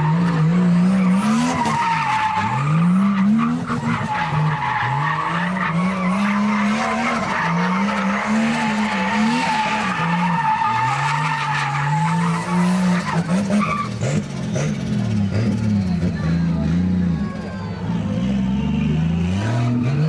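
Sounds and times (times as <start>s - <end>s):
turbocharged engine revving: 0.0s - 17.2s, 17.8s - 20.0s.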